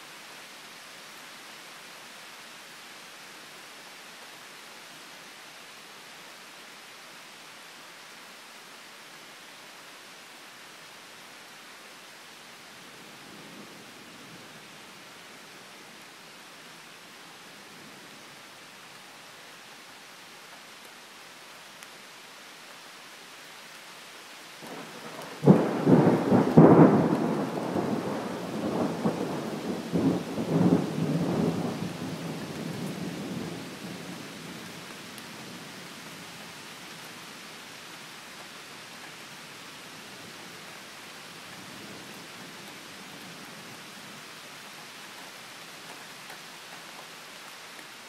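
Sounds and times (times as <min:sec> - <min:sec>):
steady rain: 0:00.0 - 0:48.0
thunder rumbling: 0:24.7 - 0:33.6.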